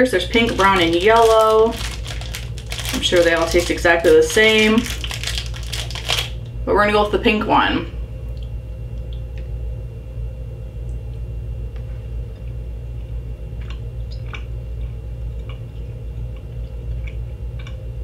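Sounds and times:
low electrical hum: 0:00.0 - 0:18.0
person chewing gummy candy: 0:00.4 - 0:06.4, 0:13.6 - 0:18.0.

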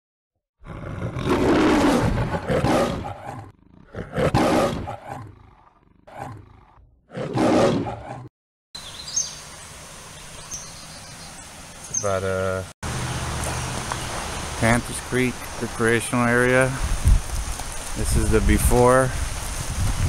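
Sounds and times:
lion roaring: 0:00.6 - 0:08.3
steady outdoor hiss: 0:08.8 - 0:19.9.

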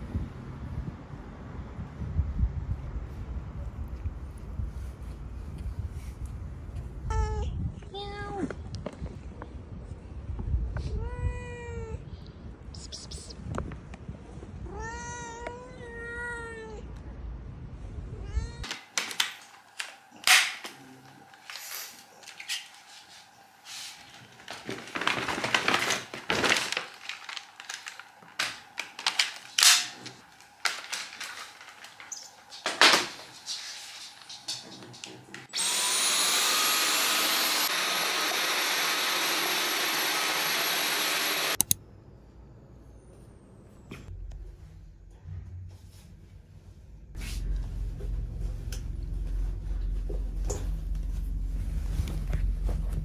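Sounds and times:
cat meowing: 0:14.6 - 0:16.8
vacuum cleaner motor whine: 0:35.5 - 0:41.6.

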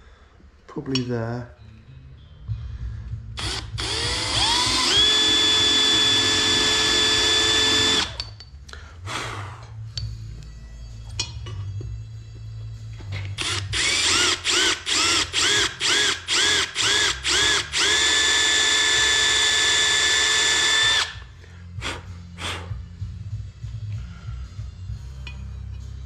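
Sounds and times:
cordless drill drilling into metal: 0:03.4 - 0:08.2, 0:13.4 - 0:21.2.

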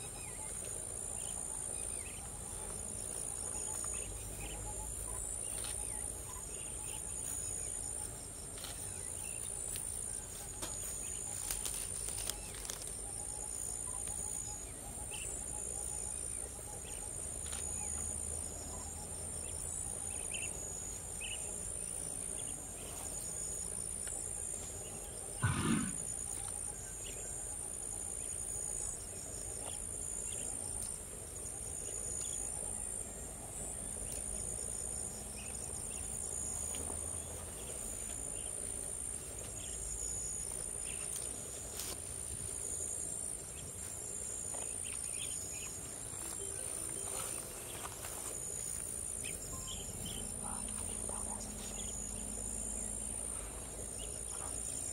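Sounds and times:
insect chorus: 0:00.0 - 0:54.9
elephant call: 0:25.4 - 0:26.4.

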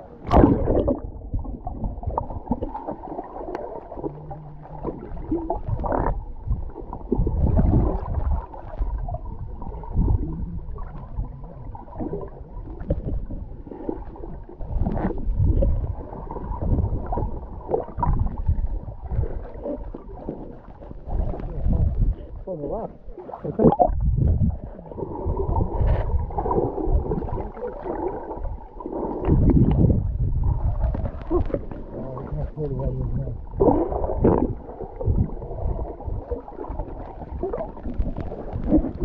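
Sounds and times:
underwater gurgling and rushing: 0:00.0 - 0:39.0
splash: 0:00.2 - 0:01.2.

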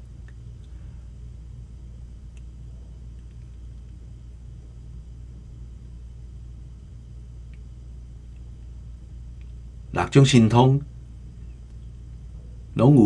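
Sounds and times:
low background hum: 0:00.0 - 0:13.0
faint clicks: 0:02.3 - 0:04.0, 0:07.5 - 0:07.7.

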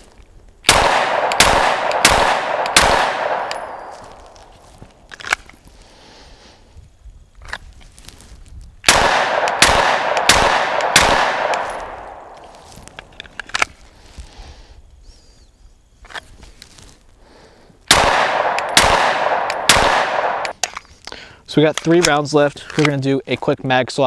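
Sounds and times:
pistol shots with echo: 0:00.7 - 0:04.4, 0:08.9 - 0:12.4, 0:17.9 - 0:20.5.

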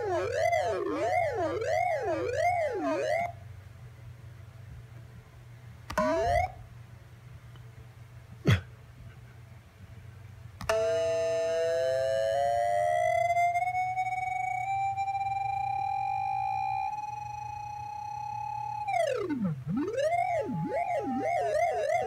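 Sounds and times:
synthesizer falling zap: 0:00.0 - 0:03.4, 0:06.0 - 0:06.6, 0:10.7 - 0:22.0
synthesizer sustained chord: 0:10.9 - 0:22.0
synthesizer rising swoop: 0:18.7 - 0:22.0.

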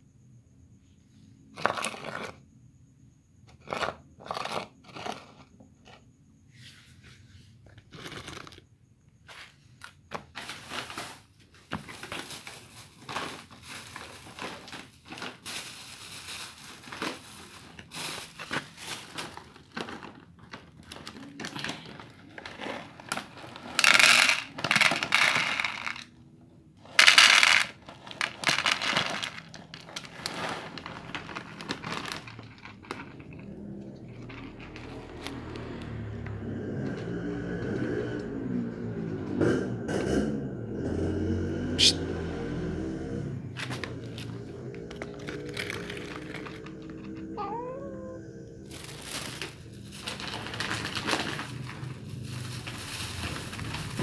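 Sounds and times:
bag of cat food crinkling: 0:07.9 - 0:08.6, 0:10.4 - 0:26.0, 0:27.0 - 0:36.1, 0:43.6 - 0:47.7, 0:48.6 - 0:54.0
food pouring into plastic bowl: 0:22.4 - 0:26.1, 0:27.0 - 0:35.9, 0:43.7 - 0:47.0, 0:48.7 - 0:54.0.

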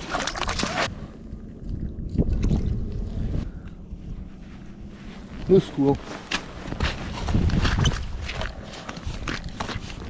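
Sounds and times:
wind buffeting microphone: 0:06.7 - 0:09.5.

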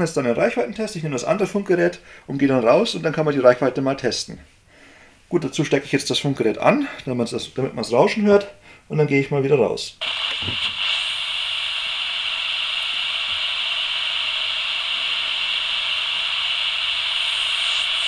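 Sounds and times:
walkie-talkie speaker hiss: 0:10.0 - 0:18.0.

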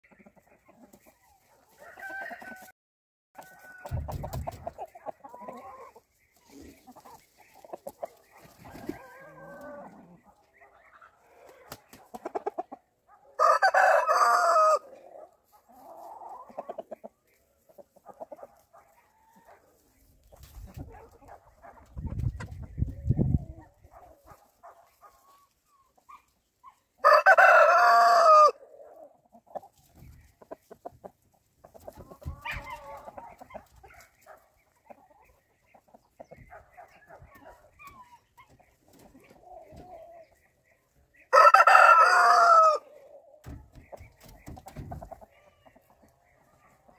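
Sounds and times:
rooster crowing: 0:01.8 - 0:02.7, 0:13.4 - 0:14.9, 0:27.0 - 0:28.6, 0:41.3 - 0:42.9
soft clucking: 0:03.8 - 0:12.9, 0:43.4 - 0:46.9.

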